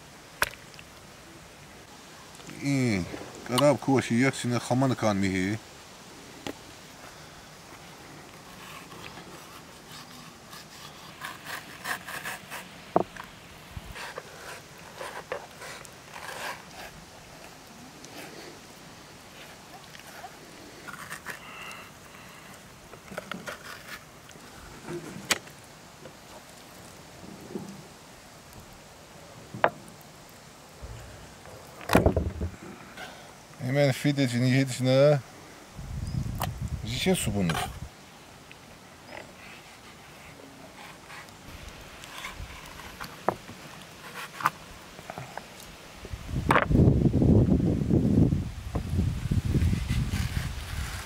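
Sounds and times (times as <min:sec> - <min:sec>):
knife scraping fish skin: 0:08.5 - 0:12.7, 0:13.9 - 0:17.0.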